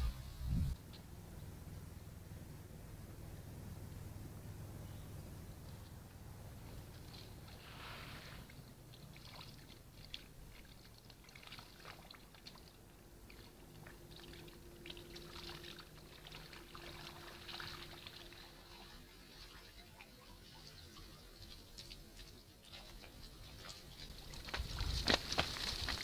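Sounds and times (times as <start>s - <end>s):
small splashes: 6.9s - 20.2s
water dripping and trickling: 8.4s - 26.0s.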